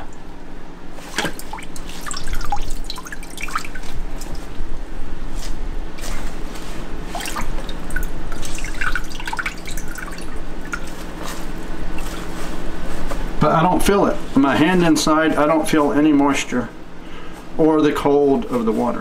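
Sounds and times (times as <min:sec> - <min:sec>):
steady low hum: 0:00.0 - 0:19.0
water dripping and splashing: 0:01.0 - 0:04.6, 0:07.1 - 0:12.4.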